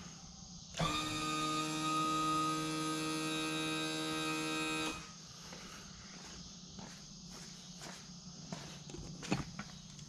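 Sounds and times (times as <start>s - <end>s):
electric tilt motor whining: 0.8s - 5.1s.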